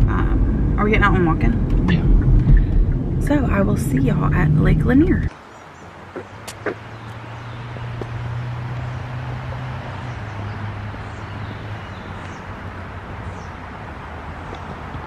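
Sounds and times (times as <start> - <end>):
low hum: 0.0 - 5.3.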